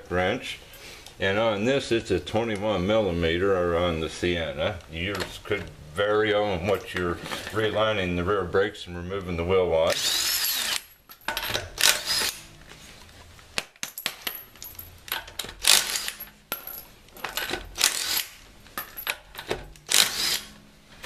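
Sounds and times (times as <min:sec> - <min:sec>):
impact wrench whine: 0:09.9 - 0:12.5, 0:15.6 - 0:16.3, 0:17.4 - 0:20.6
metallic clinks: 0:13.9 - 0:15.3, 0:16.1 - 0:17.5.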